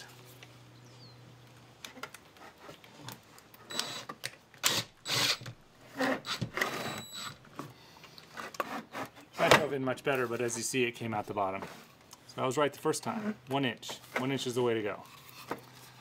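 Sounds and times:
impact driver driving a screw: 0:03.7 - 0:07.4.

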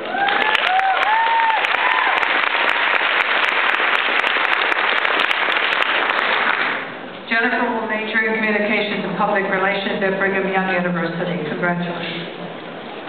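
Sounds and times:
whooping cheers: 0:00.0 - 0:02.5
audience applauding: 0:00.0 - 0:07.0.

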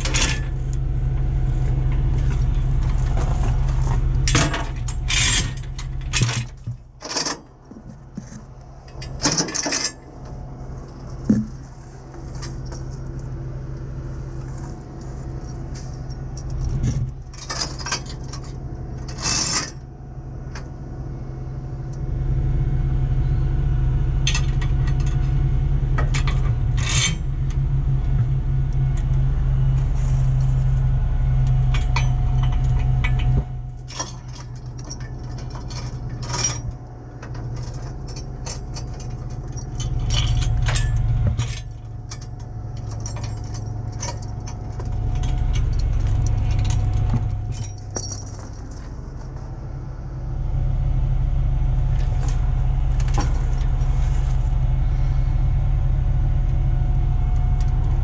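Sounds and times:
chains clinking and rattling on metal: 0:00.0 - 0:07.5, 0:08.9 - 0:13.2, 0:14.4 - 0:19.8, 0:26.0 - 0:27.3, 0:31.7 - 0:49.7
truck engine idling: 0:00.0 - 0:58.0.

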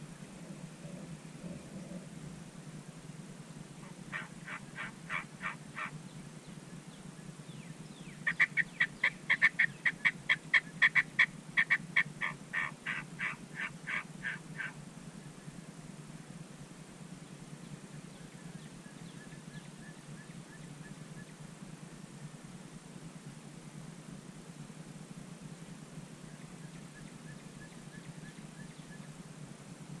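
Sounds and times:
turkey yelps: 0:03.8 - 0:05.9, 0:08.3 - 0:14.8.

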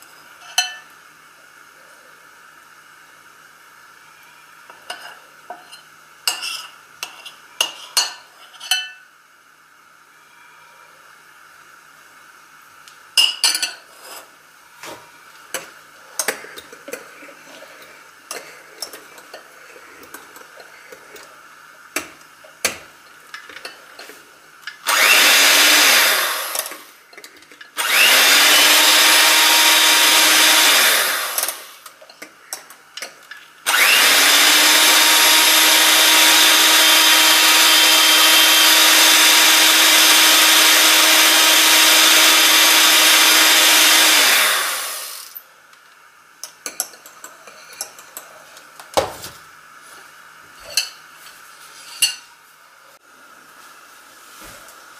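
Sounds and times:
spoon tapping glass bowl: 0:00.4 - 0:00.9
electric hand mixer whipping: 0:24.8 - 0:27.0, 0:27.8 - 0:31.8, 0:33.7 - 0:45.4.

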